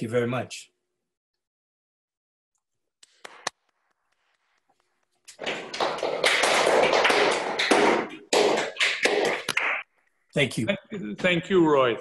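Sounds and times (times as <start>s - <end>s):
hands clapping: 3.0s - 4.4s, 5.3s - 9.9s.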